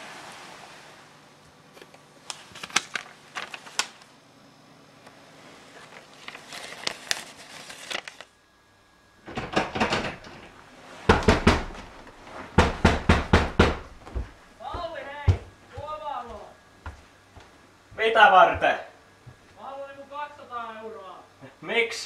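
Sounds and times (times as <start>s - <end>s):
paper rustling: 1.7s - 4.2s, 5.4s - 8.4s
sharp clicks and knocks: 9.3s - 10.5s
knocks and clatter: 9.3s - 11.9s.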